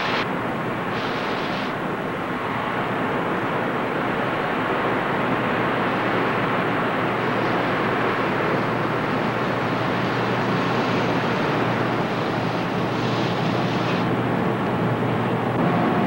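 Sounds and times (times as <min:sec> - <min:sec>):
bright hiss: 0:00.0 - 0:00.3, 0:00.9 - 0:01.8.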